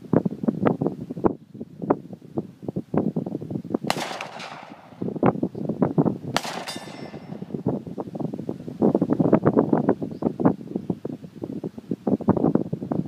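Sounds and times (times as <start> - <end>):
wind buffeting microphone: 0.0 - 13.0
pistol shots with echo: 3.9 - 5.2, 6.3 - 7.6.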